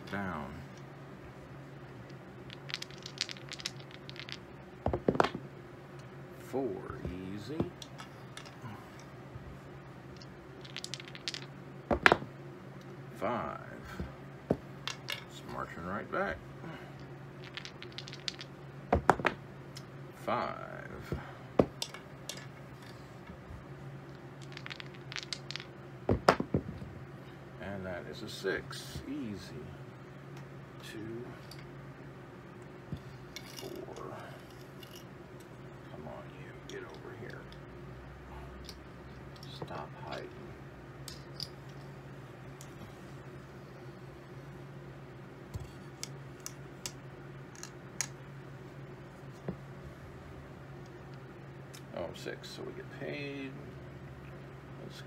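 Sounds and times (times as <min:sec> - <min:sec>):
low steady hum: 0:00.0 - 0:55.0
dice clicking: 0:02.1 - 0:05.4, 0:07.0 - 0:08.6, 0:10.2 - 0:12.2, 0:17.4 - 0:19.9, 0:24.4 - 0:26.6, 0:45.6 - 0:48.2.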